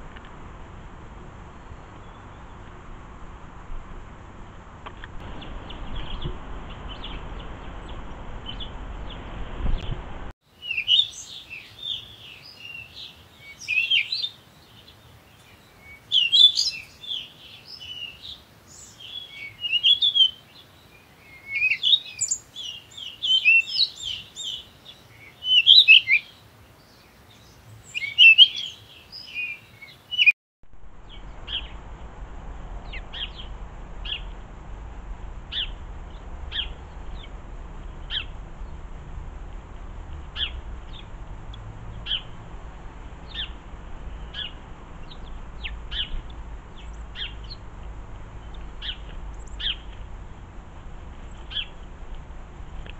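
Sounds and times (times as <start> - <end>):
low background rumble: 0.0 - 10.4, 30.7 - 52.9
songbirds singing and chirping: 1.4 - 2.8, 4.8 - 30.3, 31.0 - 32.2, 32.8 - 34.6, 35.4 - 52.9.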